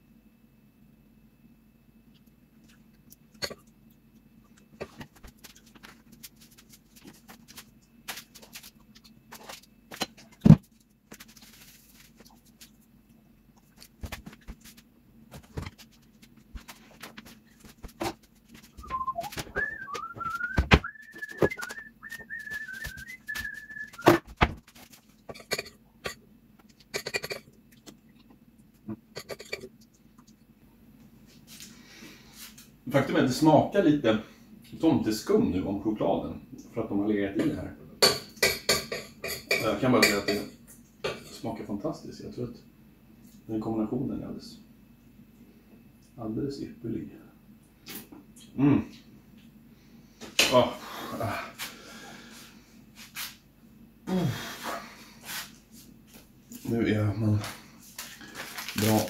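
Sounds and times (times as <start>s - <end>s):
low steady hum: 0.0s - 59.0s
person whistling a tune: 18.8s - 24.2s
utensils pots and dishes clattering: 25.2s - 27.5s, 29.1s - 29.8s, 37.4s - 41.6s.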